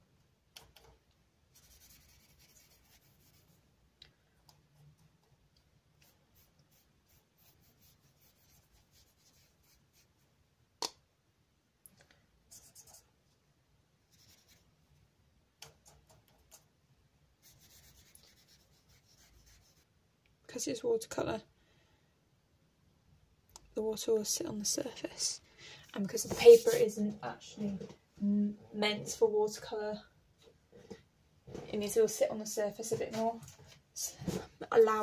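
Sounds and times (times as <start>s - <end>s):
paintbrush strokes on paper: 1.5s - 3.6s, 5.9s - 10.3s, 12.5s - 13.1s, 14.0s - 14.8s, 17.4s - 19.9s, 26.1s - 27.0s, 32.8s - 33.7s.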